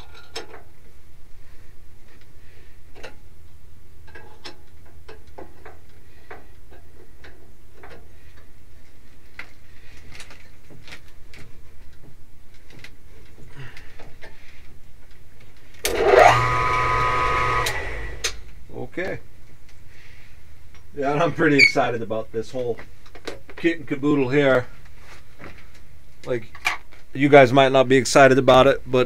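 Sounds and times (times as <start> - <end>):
low steady hum: 15.8 - 18.7
machine whine rising in pitch: 15.9 - 18.5.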